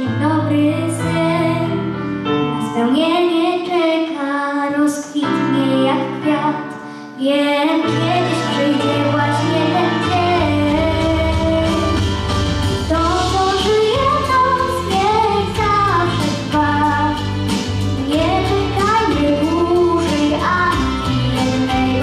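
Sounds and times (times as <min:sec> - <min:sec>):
girl singing pop song: 0:00.0 - 0:22.0
instrumental accompaniment: 0:05.1 - 0:22.0.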